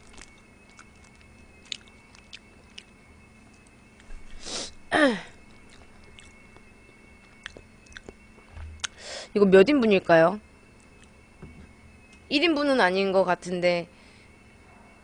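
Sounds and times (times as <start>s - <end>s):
sharp breath: 8.9s - 9.4s.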